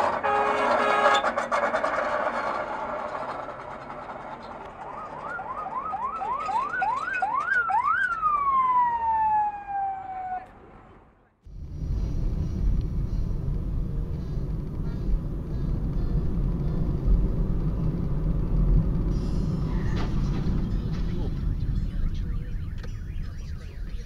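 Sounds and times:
siren-like rising whoops: 0:04.7 - 0:10.5.

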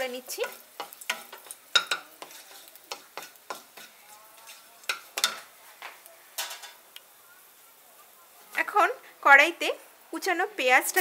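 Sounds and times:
wooden spatula scraping a pan: 0:00.0 - 0:06.8
spices sizzling in hot oil: 0:00.0 - 0:11.0.

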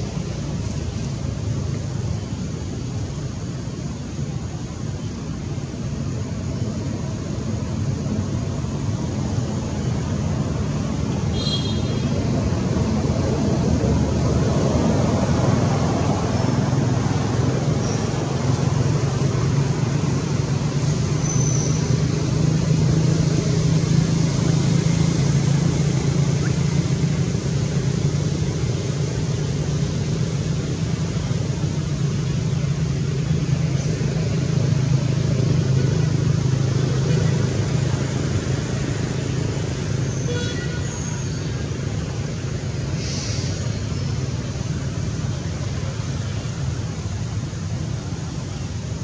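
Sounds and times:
low motor hum: 0:00.0 - 0:43.0
steady hiss: 0:00.0 - 0:49.0
faint high chirps: 0:21.1 - 0:22.7.

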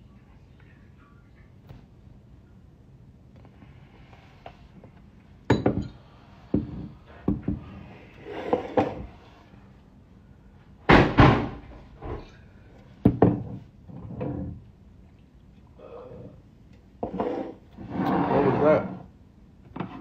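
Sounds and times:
irregular thumps and knocks: 0:05.5 - 0:07.7, 0:13.0 - 0:14.7.

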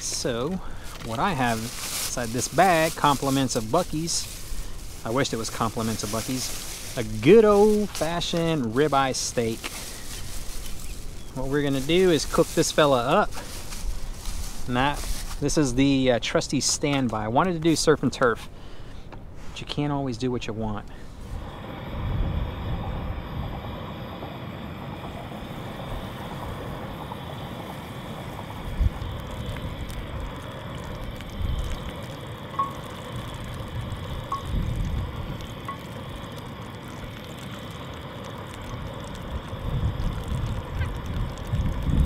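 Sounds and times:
gas burner hissing: 0:00.0 - 0:16.1, 0:20.9 - 0:42.0
wind buffeting microphone: 0:21.2 - 0:35.8, 0:38.9 - 0:42.0.

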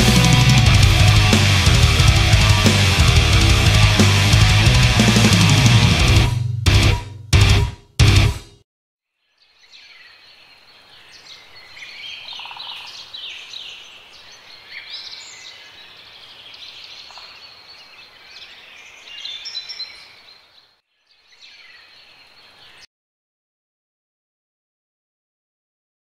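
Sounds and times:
birds singing: 0:09.3 - 0:22.9.

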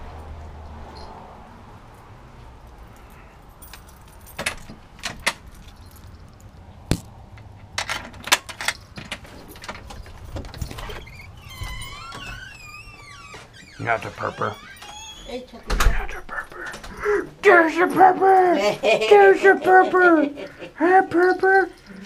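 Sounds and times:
keys jangling: 0:02.7 - 0:06.6, 0:07.4 - 0:13.1, 0:20.4 - 0:22.0
door handle and latch clicking: 0:07.4 - 0:12.8.

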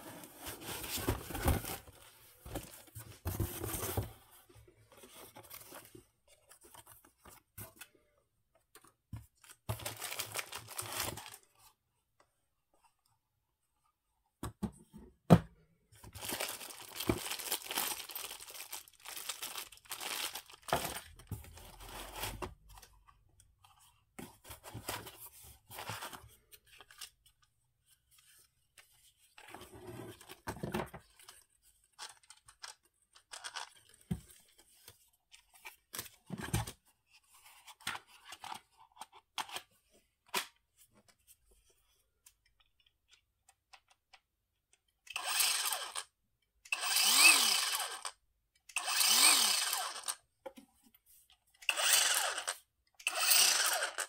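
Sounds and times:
parts handled in cardboard box: 0:00.0 - 0:07.9, 0:08.8 - 0:11.8, 0:16.0 - 0:27.2
packaging crinkling: 0:16.2 - 0:21.6.

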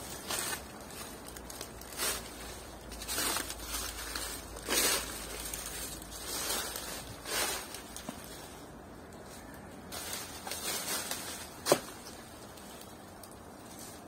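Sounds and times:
footsteps crunching on forest floor: 0:00.0 - 0:14.0.

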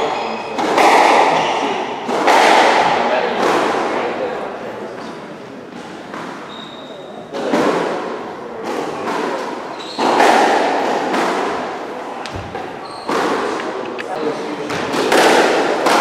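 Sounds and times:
dull thuds echoing in a hall: 0:00.0 - 0:16.0
voices murmuring: 0:00.0 - 0:16.0.

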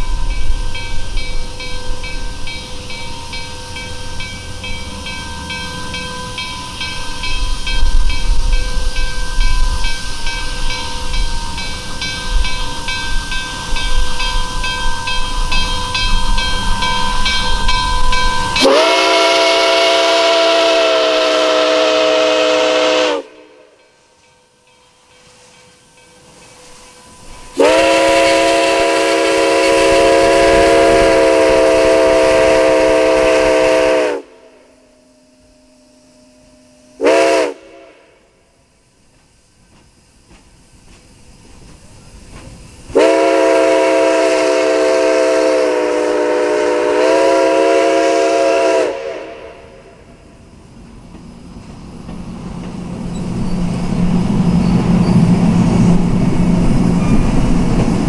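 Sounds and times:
regular ringing strokes: 0:00.0 - 0:18.7, 0:23.7 - 0:27.7, 0:34.5 - 0:37.0
steam chime whistle blasts: 0:00.0 - 0:38.8, 0:42.9 - 0:50.4
steam locomotive rumble and hiss: 0:00.0 - 0:58.0.

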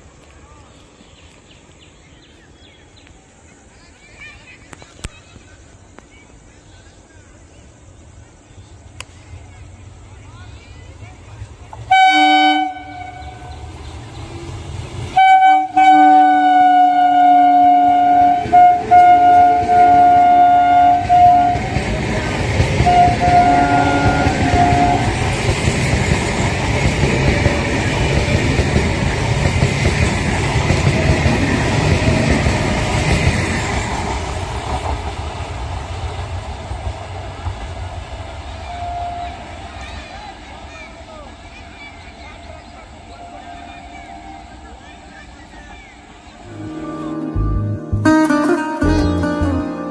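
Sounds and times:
train rumbling: 0:07.8 - 0:49.9
train horn blasts: 0:11.9 - 0:13.6, 0:15.1 - 0:22.0, 0:22.7 - 0:25.4, 0:38.7 - 0:39.6.

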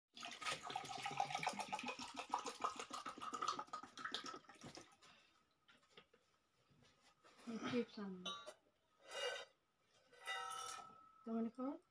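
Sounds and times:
water pouring into metal tumbler: 0:00.2 - 0:05.1.

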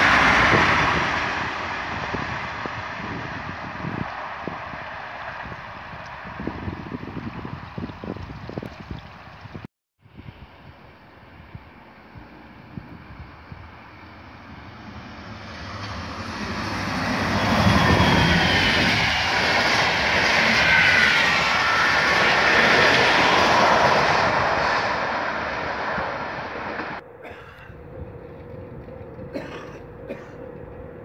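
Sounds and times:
falling whine: 0:11.2 - 0:31.0
train wheels on rails: 0:13.8 - 0:31.0.

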